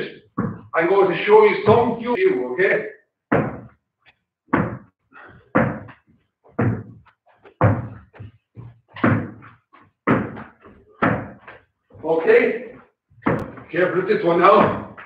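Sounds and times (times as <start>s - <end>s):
ball bouncing off the floor: 0.4s - 0.7s, 3.3s - 3.8s, 4.5s - 4.9s, 5.6s - 11.6s, 13.2s - 13.7s.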